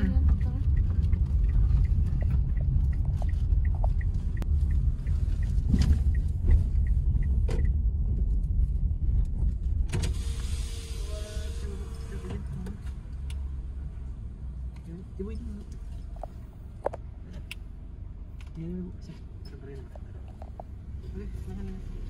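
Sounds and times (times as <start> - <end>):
light regular ticking: 0.0 - 8.6
car interior low rumble: 0.0 - 22.0.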